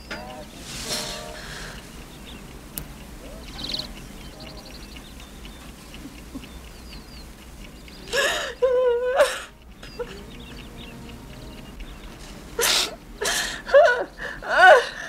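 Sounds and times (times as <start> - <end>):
woman sobbing: 8.0 - 10.6, 12.6 - 15.0.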